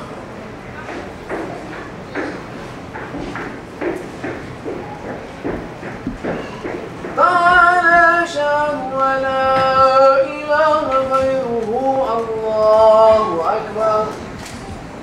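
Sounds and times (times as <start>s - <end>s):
man chanting: 7.2s - 14.3s.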